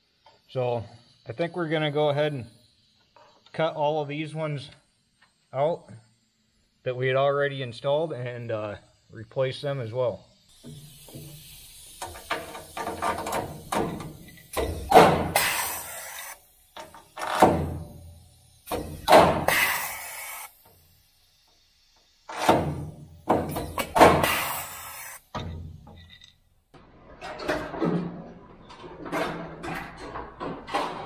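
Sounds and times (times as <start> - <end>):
air hissing: 0.0 - 26.5
pneumatic tool cracking: 10.5 - 26.4.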